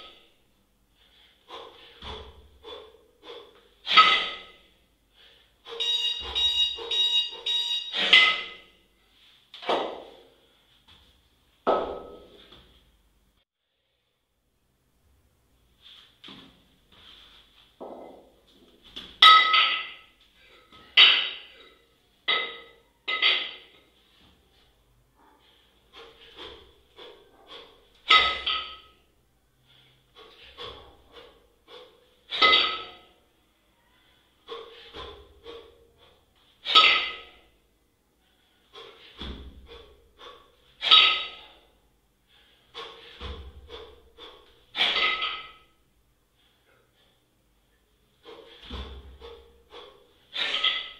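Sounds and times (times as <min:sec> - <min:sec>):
man breathing heavily: 0:00.0 - 0:11.3, 0:23.4 - 0:50.9
steel kettlebells clanking together: 0:01.5 - 0:04.7, 0:05.6 - 0:08.8, 0:19.1 - 0:23.8, 0:25.9 - 0:29.1, 0:30.2 - 0:33.2, 0:34.4 - 0:37.5, 0:38.7 - 0:41.6, 0:42.4 - 0:45.8, 0:48.2 - 0:50.9.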